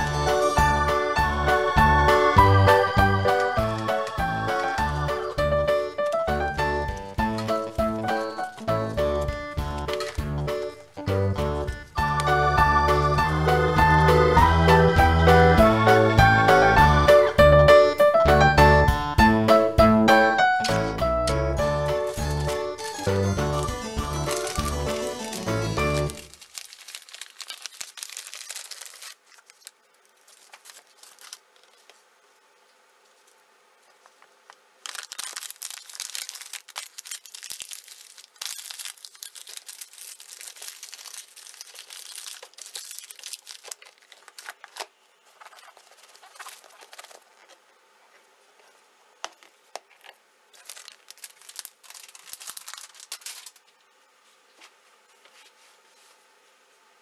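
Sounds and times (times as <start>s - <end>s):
thin sheet material crinkling: 3.2s - 11.0s, 22.0s - 32.4s, 33.0s - 56.3s.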